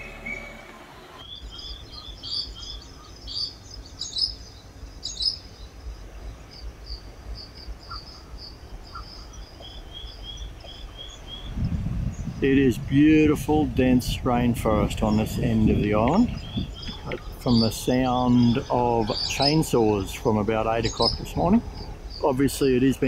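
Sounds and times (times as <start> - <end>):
low background rumble: 0.0 - 23.0
songbirds chirping and whistling: 0.0 - 23.0.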